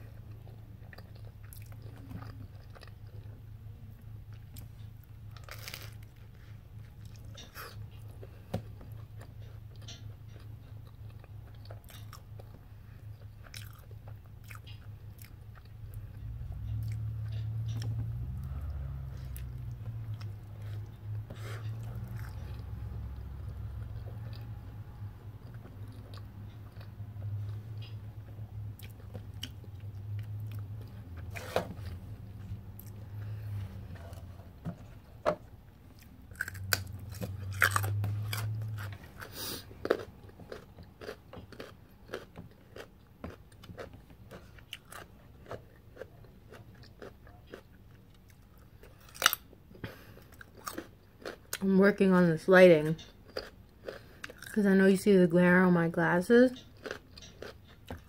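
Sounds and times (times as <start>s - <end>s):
chewing crunchy bread: 0.0s - 52.2s, 52.8s - 54.7s, 56.5s - 58.0s.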